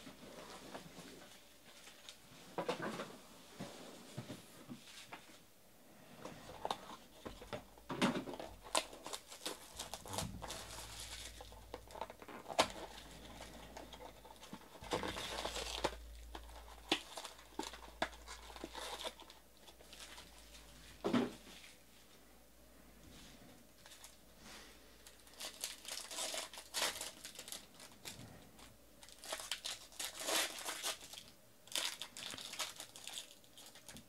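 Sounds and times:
card packs crinkling: 0:06.4 - 0:20.6, 0:25.0 - 0:34.0.

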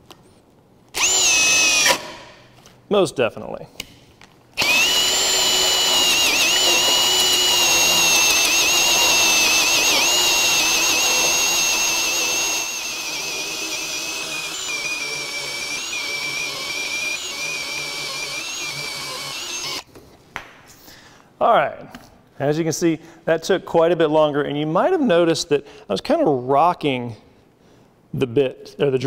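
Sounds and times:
drill motor whine: 0:01.0 - 0:02.1, 0:04.6 - 0:19.8
hole saw cutting wood: 0:01.0 - 0:02.2, 0:04.6 - 0:19.8.

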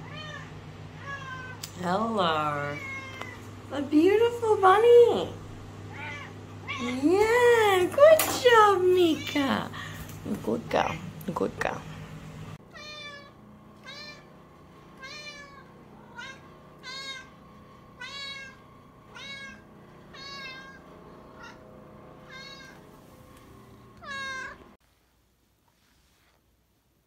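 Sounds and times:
cat meowing: 0:00.0 - 0:01.7, 0:02.6 - 0:03.4, 0:05.9 - 0:07.0, 0:12.7 - 0:14.3, 0:15.0 - 0:17.3, 0:18.0 - 0:20.8, 0:22.2 - 0:22.8, 0:24.0 - 0:24.7.

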